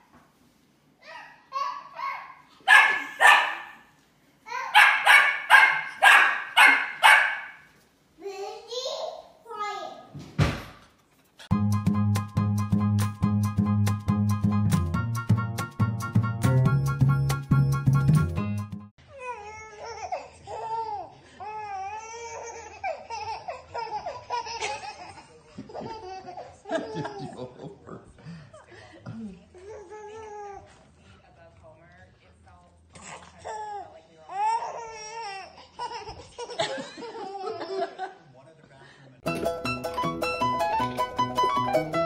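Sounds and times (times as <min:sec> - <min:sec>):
puppy barking and yipping: 0:02.0 - 0:03.8, 0:04.6 - 0:07.7.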